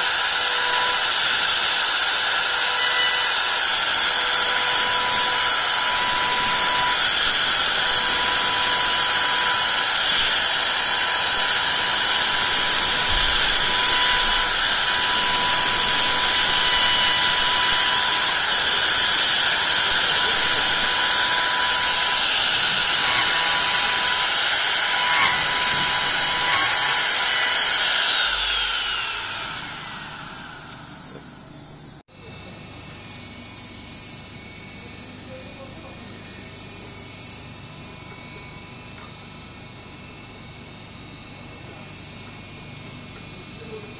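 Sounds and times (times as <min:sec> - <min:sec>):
rotary carving tool whining: 0:00.0 - 0:32.0, 0:32.8 - 0:39.1, 0:41.4 - 0:43.9.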